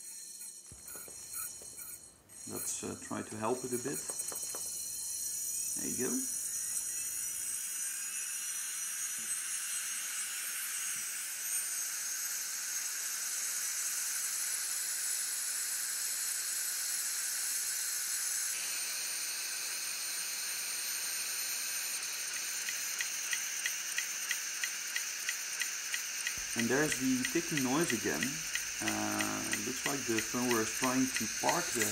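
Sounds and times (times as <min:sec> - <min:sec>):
hard drive head ticking: 0:00.0 - 0:07.5, 0:22.2 - 0:31.9
hard drive whine and hiss: 0:00.0 - 0:31.9.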